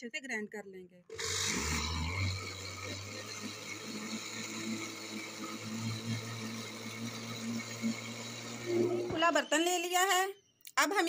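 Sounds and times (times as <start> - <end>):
liquid churning: 1.1 - 9.3
blender motor hum: 1.1 - 9.9.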